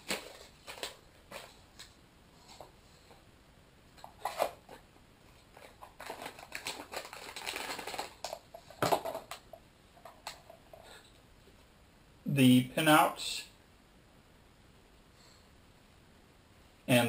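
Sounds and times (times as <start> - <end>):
plastic bag crinkling: 0.0 - 1.9, 5.5 - 9.4.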